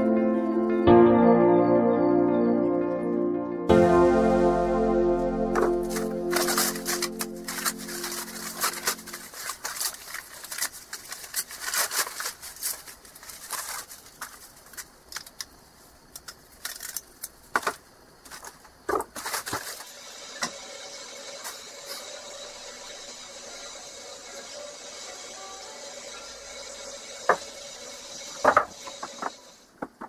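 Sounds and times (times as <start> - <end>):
music: 0.0 - 9.3
paper rustling: 5.6 - 15.5, 16.1 - 19.9.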